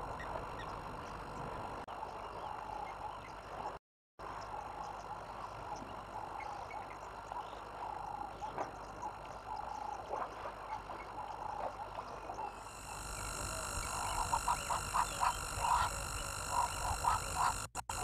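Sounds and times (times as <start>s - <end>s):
frogs croaking: 0.0s - 18.0s
steady high hiss: 12.6s - 18.0s.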